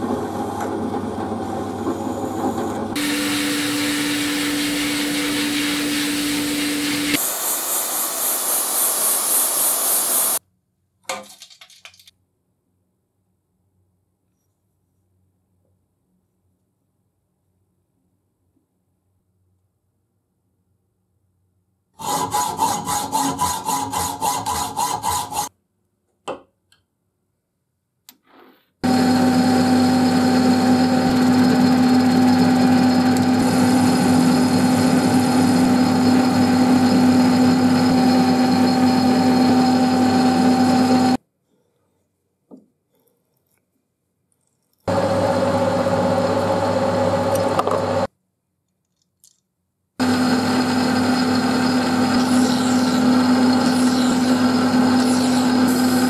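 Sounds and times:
hacksaw cutting metal rod: 22.0s - 25.5s
metal lathe running: 28.8s - 41.2s, 50.0s - 56.0s.

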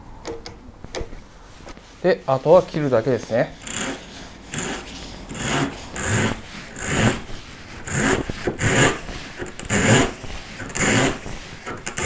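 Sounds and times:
hand saw cutting wood: 3.4s - 12.0s.

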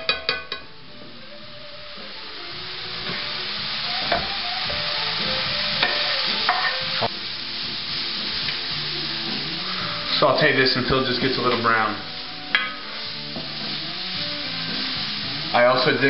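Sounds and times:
spatula knocking against pan: 0.0s - 0.7s
garlic sizzling in oil: 0.0s - 16.0s.

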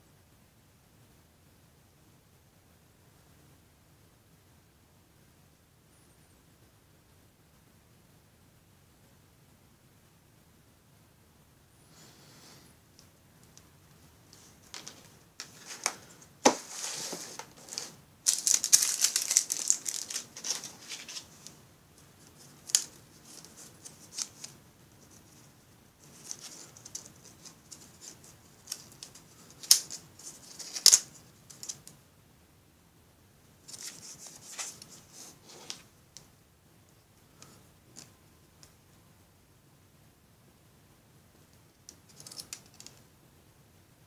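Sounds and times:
scratchy plastic rustling: 14.3s - 31.9s, 33.7s - 35.9s.

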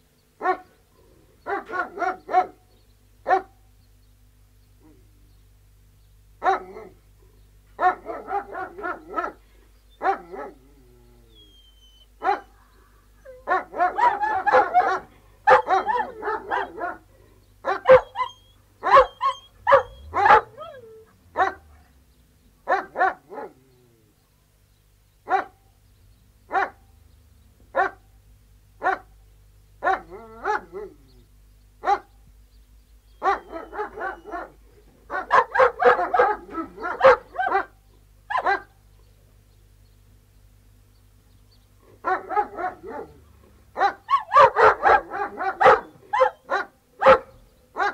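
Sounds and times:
dogs barking: 0.4s - 0.8s, 1.4s - 3.6s, 6.4s - 7.0s, 7.7s - 10.7s, 11.5s - 22.0s, 22.6s - 23.8s, 25.2s - 25.6s, 26.5s - 26.8s, 27.7s - 28.0s, 28.8s - 29.2s, 29.8s - 31.1s, 31.8s - 32.2s, 33.1s - 38.8s, 41.8s - 47.9s.

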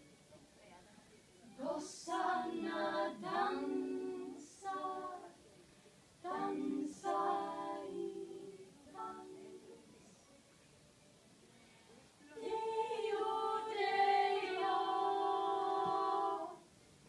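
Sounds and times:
young singers singing: 1.6s - 5.6s, 6.2s - 10.0s, 12.3s - 16.7s.

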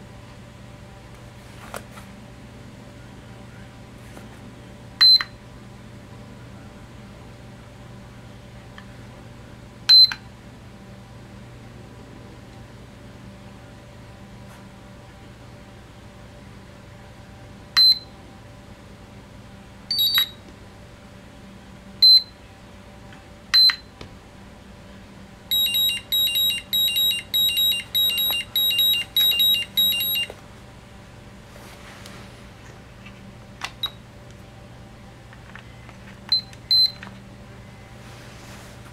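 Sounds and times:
charger beeps: 19.9s - 20.4s, 25.5s - 30.4s, 36.3s - 37.0s.

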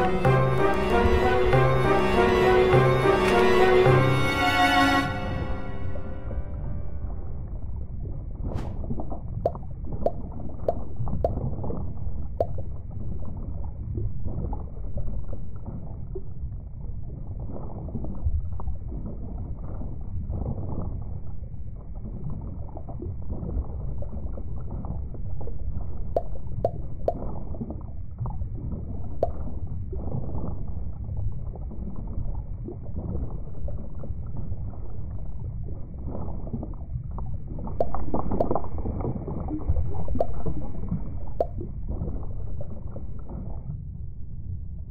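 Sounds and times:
underwater bubbling and gurgling: 0.0s - 4.0s, 5.1s - 44.9s.

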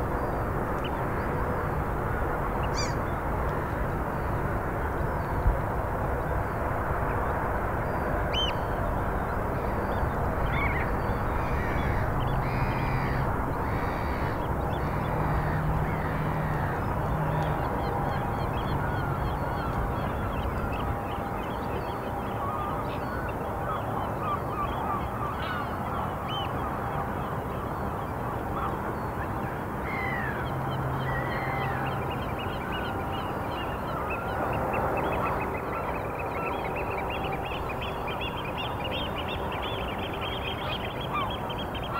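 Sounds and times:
steady outdoor background hiss: 0.0s - 41.9s
waterbirds honking: 2.6s - 3.1s.

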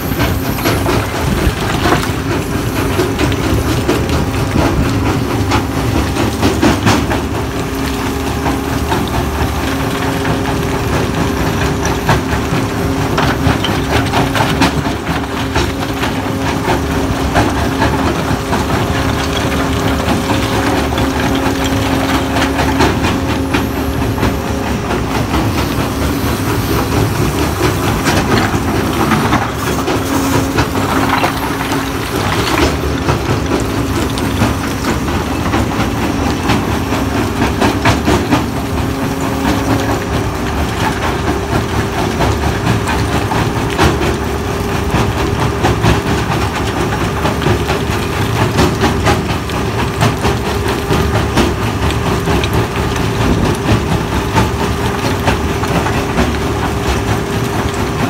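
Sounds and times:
stone crusher mechanical hum: 0.0s - 58.0s
stone rattling and cracking: 26.8s - 38.5s.

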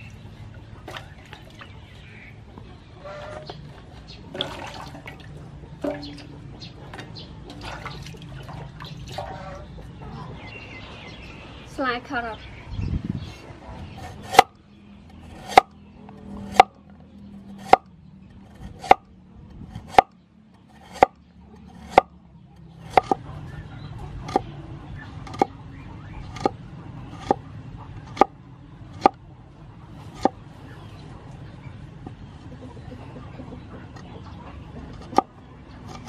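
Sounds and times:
cleaver chopping on wooden board: 15.4s - 15.7s, 17.6s - 17.9s, 19.8s - 20.1s, 20.8s - 21.2s, 21.8s - 22.1s, 22.9s - 23.2s.

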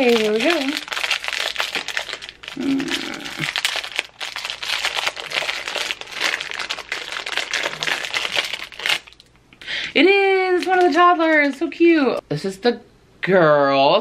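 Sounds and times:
foil bag crinkling and tearing: 0.0s - 9.3s, 10.2s - 11.6s.

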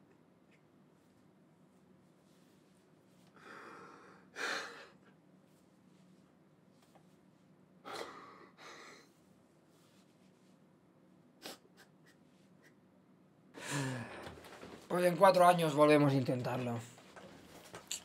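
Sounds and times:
man crying with gasping breaths: 13.6s - 14.4s.

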